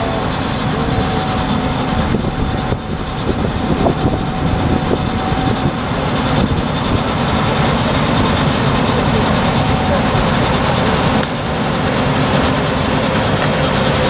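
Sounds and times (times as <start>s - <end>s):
combine harvester drone: 0.0s - 14.0s.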